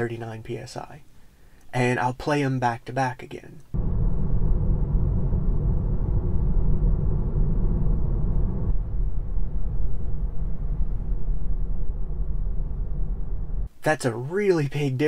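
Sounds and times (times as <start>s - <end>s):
tyre road noise rumble: 3.8s - 13.7s.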